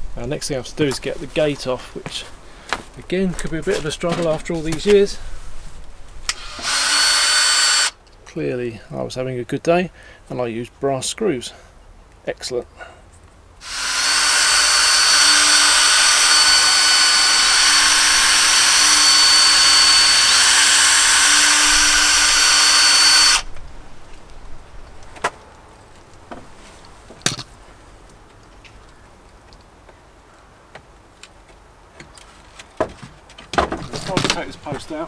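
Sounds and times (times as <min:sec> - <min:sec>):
cordless drill running: 0:06.3 - 0:08.0, 0:13.6 - 0:23.5.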